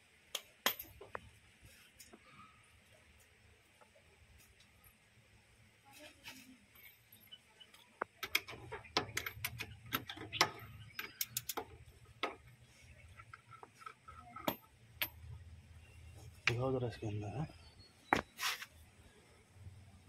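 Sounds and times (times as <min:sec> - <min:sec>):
small metallic clinks: 0:06.7 - 0:12.6, 0:13.2 - 0:15.5.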